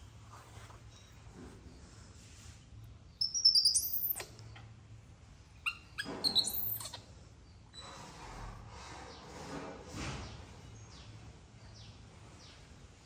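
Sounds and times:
high-pitched chirping animal calls: 3.2s - 4.7s, 5.6s - 7.1s.

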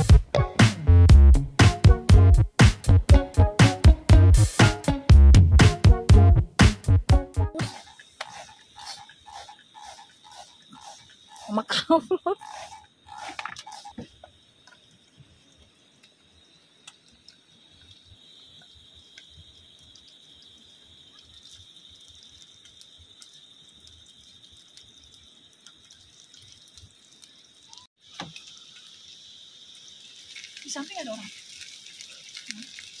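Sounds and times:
insect chirring: 7.5s - 33.0s.

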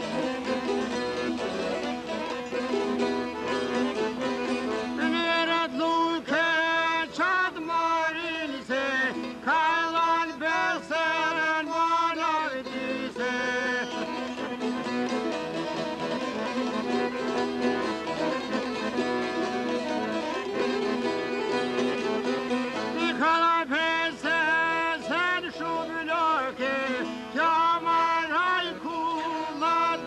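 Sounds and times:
plucked long-necked lutes: 0.0s - 30.0s
man singing ornamented phrases: 4.9s - 14.7s, 22.7s - 30.0s.

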